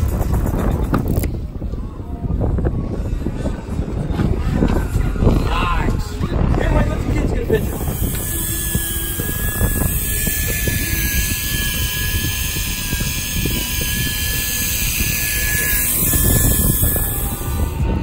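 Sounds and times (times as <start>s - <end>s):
wind buffeting microphone: 0.0s - 18.0s
fishing reel whine: 7.5s - 18.0s.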